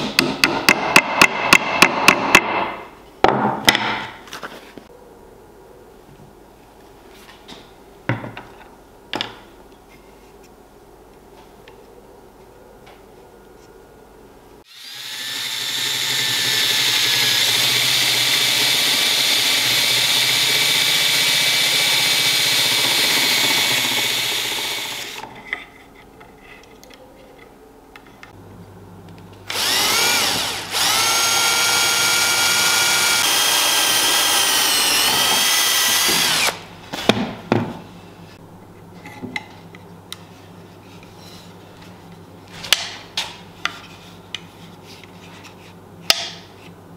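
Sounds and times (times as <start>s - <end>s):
cordless drill boring into wood: 14.7s - 25.2s, 29.5s - 36.6s.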